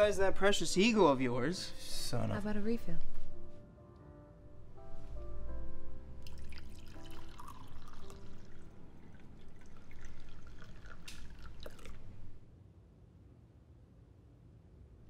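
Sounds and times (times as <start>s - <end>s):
soft music: 0.0s - 12.4s
coffee pouring into cup: 6.2s - 12.4s.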